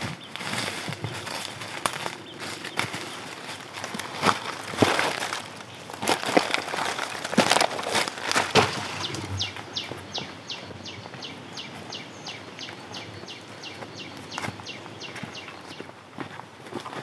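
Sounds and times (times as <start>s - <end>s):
footsteps crunching on dry leaves: 0.0s - 11.9s.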